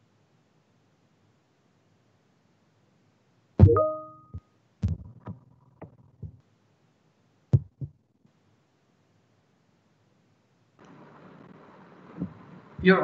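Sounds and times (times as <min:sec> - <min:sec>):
short low knocks and clicks: 0:04.8 - 0:06.4, 0:07.6 - 0:07.9.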